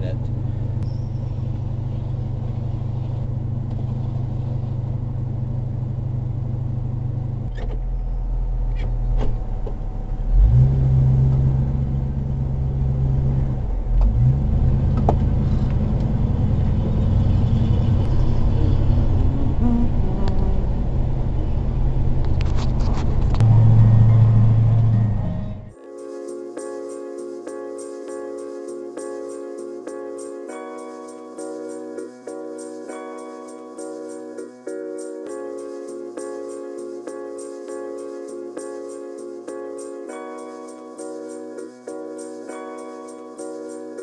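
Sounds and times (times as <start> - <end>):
engine and road drone: 0.0 - 25.8.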